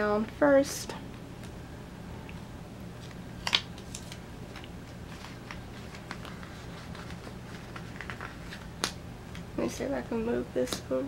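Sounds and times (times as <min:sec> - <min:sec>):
paper crackle: 0:03.0 - 0:09.4.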